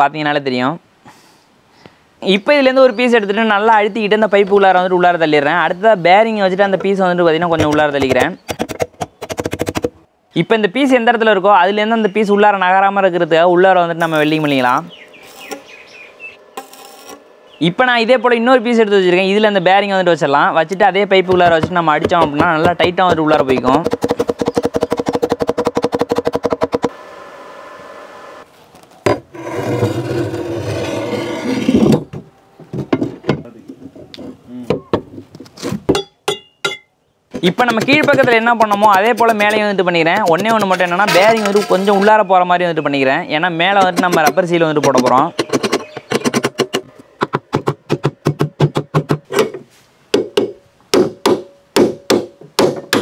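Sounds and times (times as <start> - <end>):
steering tube scraping in bearings: 14.0 - 17.8, 28.2 - 32.1, 40.2 - 42.2.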